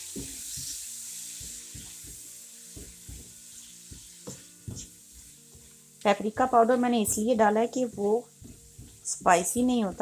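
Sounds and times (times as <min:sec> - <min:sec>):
chillies frying in oil: 0:00.0 - 0:10.0
spatula knocking and scraping: 0:01.4 - 0:05.7, 0:07.0 - 0:10.0.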